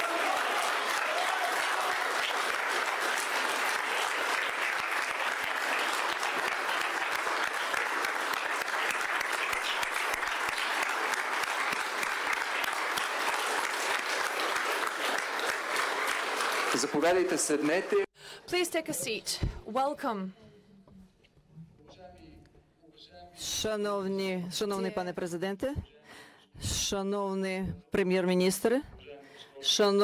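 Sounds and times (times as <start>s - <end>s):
audience applauding: 0.0s - 18.1s.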